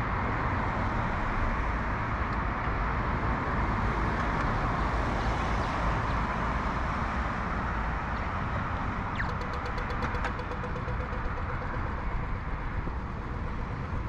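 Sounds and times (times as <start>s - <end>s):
city road traffic: 0.0s - 14.0s.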